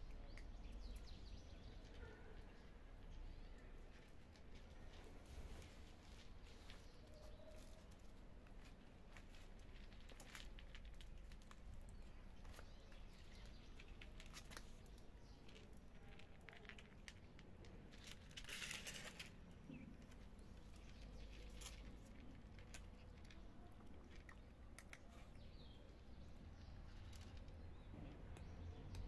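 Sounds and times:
cats chewing dry kibble: 3.5 - 5.2, 7.5 - 29.0
rustle: 17.9 - 19.5.

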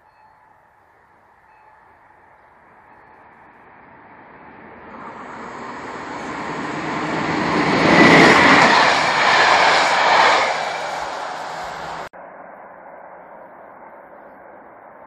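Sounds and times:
passenger train passing: 0.0 - 12.6.

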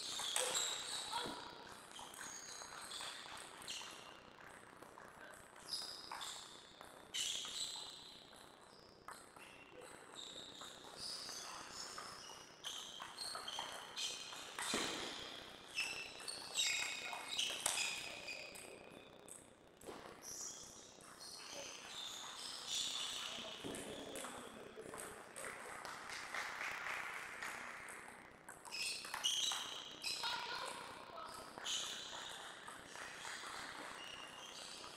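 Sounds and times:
table tennis ball bouncing on table: 27.8 - 34.0.

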